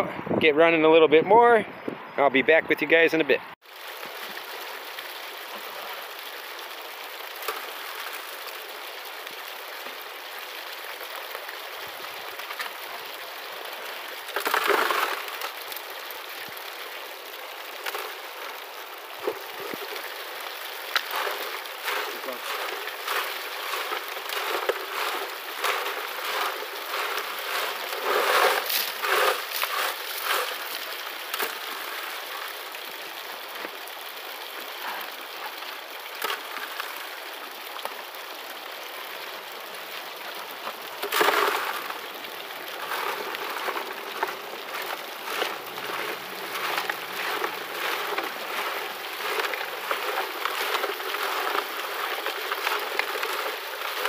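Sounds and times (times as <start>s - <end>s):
water rushing through sluice: 3.6s - 54.0s
gravel clattering on metal grate: 14.4s - 15.4s, 21.0s - 31.6s, 42.8s - 54.0s.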